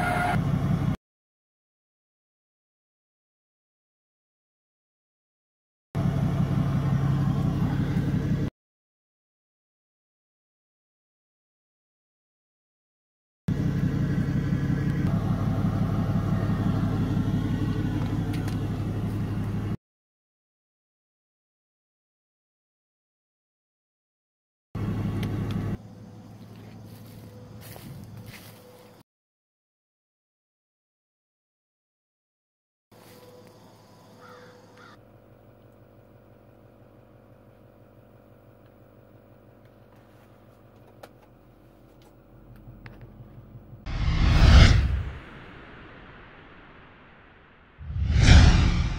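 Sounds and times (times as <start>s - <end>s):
truck engine idling: 6.0s - 8.5s, 13.5s - 19.8s
bird calling: 34.1s - 35.0s.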